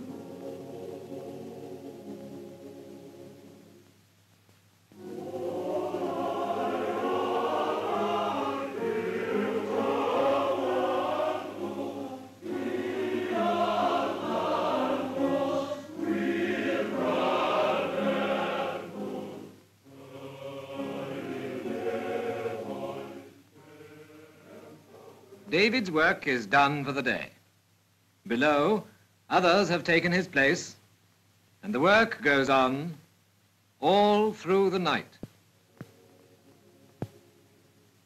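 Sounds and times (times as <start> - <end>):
choir singing: 0.0 - 3.8, 4.9 - 25.6.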